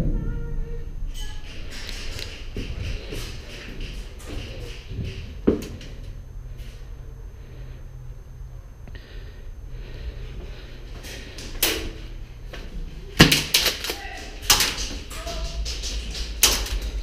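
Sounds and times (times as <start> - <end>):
low steady rumble: 0.0 - 13.3.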